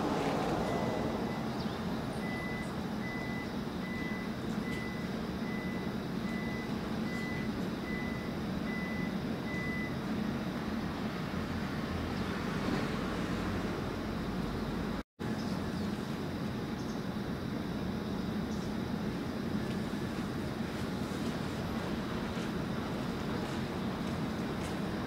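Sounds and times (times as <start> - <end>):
electronic warning beeper: 2.2 - 10.0.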